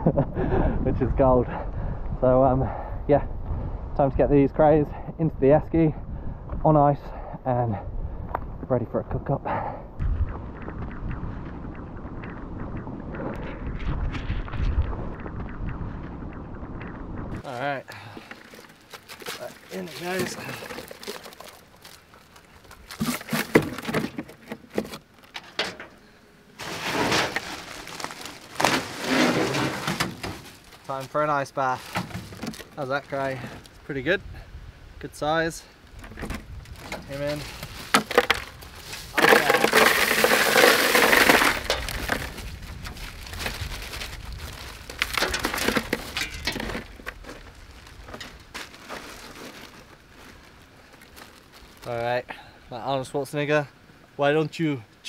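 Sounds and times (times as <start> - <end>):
rustling: 17.3 - 26.0, 26.6 - 33.7, 35.9 - 52.1
seafood clattering in cooler: 37.8 - 42.4.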